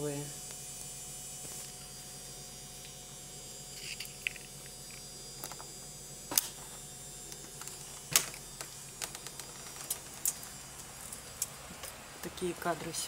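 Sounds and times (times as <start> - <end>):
faint hum: 0.0 - 13.0
squirrel cracking nut shells: 3.8 - 5.7, 7.3 - 12.0.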